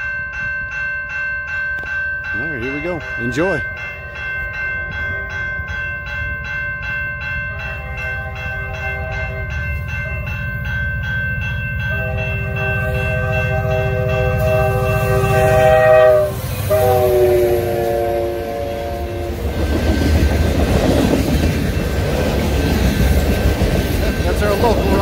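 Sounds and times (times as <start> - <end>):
crossing bell ringing: 0.0 - 25.0
locomotive horn blasts: 7.5 - 10.3, 11.8 - 19.4
locomotive engine rumble: 8.0 - 25.0.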